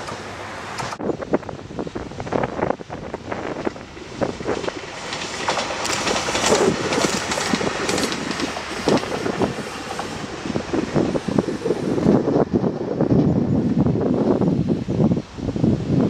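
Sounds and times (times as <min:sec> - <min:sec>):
train wheels clattering over rail joints: 0:03.0 - 0:13.4.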